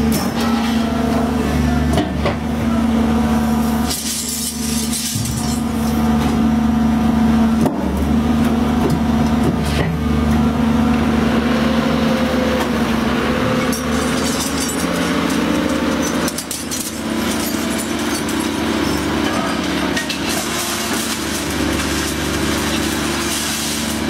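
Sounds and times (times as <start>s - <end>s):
hydraulic machine hum: 0.0s - 24.0s.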